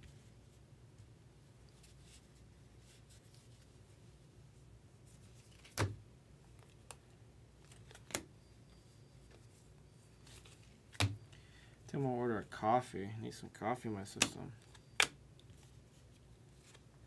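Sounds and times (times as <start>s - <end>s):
low steady hum: 0.0s - 17.0s
trading cards being handled: 5.1s - 11.4s, 14.0s - 17.0s.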